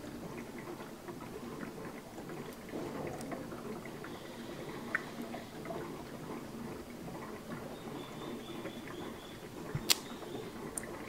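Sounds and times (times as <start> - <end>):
faint ticks of drops: 0.4 - 11.0.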